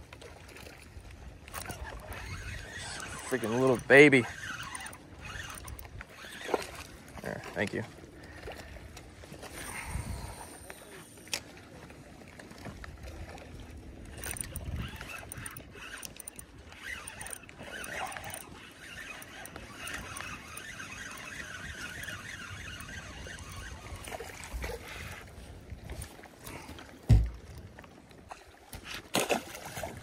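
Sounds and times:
water lapping against boat hull: 0:00.0 - 0:30.0
fishing reel cranking: 0:01.4 - 0:07.7, 0:09.4 - 0:11.4, 0:13.9 - 0:25.3.

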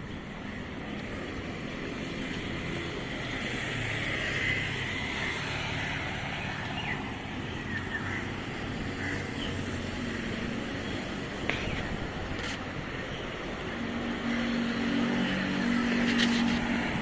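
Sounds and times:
road traffic hum: 0:00.0 - 0:17.0
birds chirping: 0:04.5 - 0:14.6.

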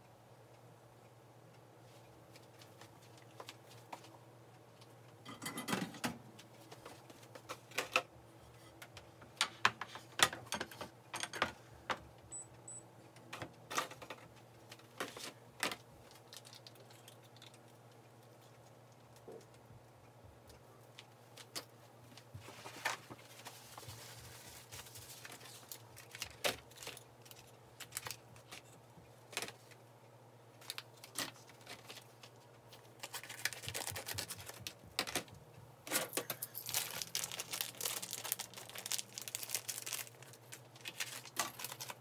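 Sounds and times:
low steady hum: 0:00.0 - 0:42.0
clicks and knocks of kitchen items: 0:05.2 - 0:08.1, 0:08.7 - 0:12.1.

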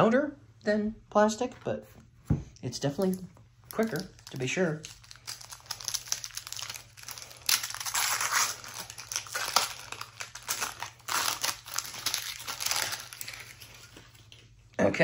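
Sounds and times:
paper wrappers tearing and crinkling: 0:02.9 - 0:14.5.

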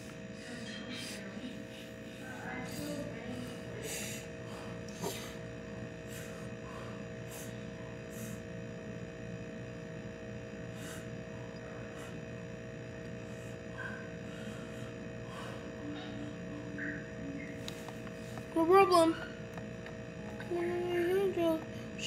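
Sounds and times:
electrical hum: 0:00.0 - 0:22.0.

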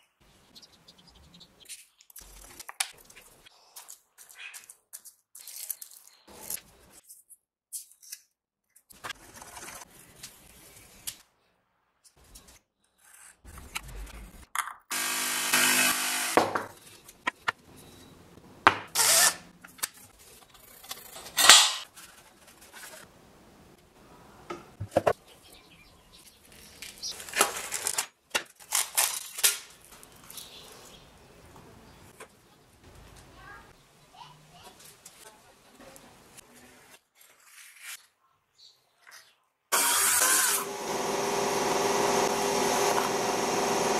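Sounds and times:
cordless drill whirring: 0:14.9 - 0:16.4, 0:19.0 - 0:19.4, 0:39.8 - 0:43.9
rubbing and brushing: 0:20.0 - 0:23.1.

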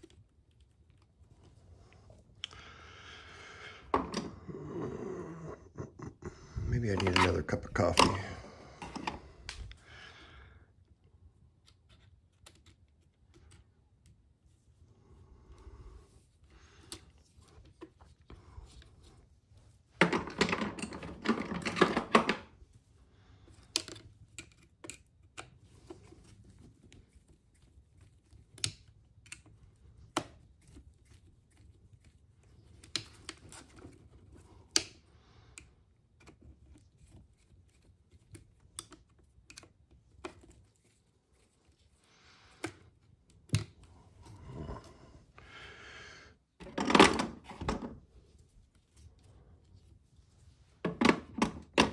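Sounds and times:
tools and small parts clattering: 0:19.9 - 0:22.6, 0:46.6 - 0:48.0, 0:50.8 - 0:51.9.

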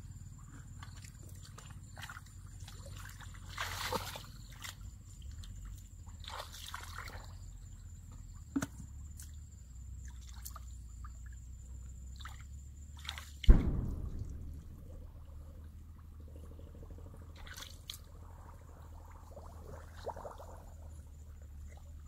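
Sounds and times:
splashes in muddy water: 0:00.7 - 0:07.7, 0:08.6 - 0:22.0
sharp knock: 0:13.5 - 0:15.3
low rumble: 0:13.5 - 0:19.5.

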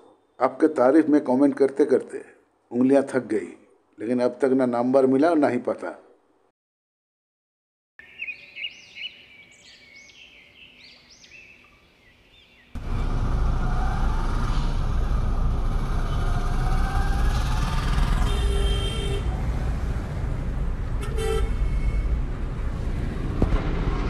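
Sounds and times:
street traffic noise: 0:12.8 - 0:24.0.

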